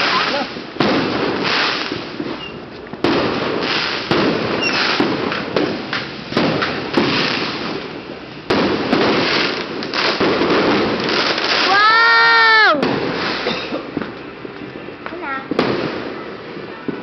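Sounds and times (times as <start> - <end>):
fireworks bangs: 0.0 - 17.0
fireworks crackle and hiss: 0.0 - 17.0.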